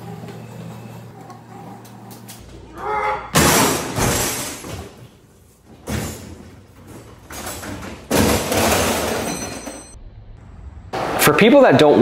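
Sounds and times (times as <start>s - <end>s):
metal crash of tools spilling: 3.4s - 4.9s, 7.3s - 10.0s
toolbox rattling on casters: 5.7s - 10.0s.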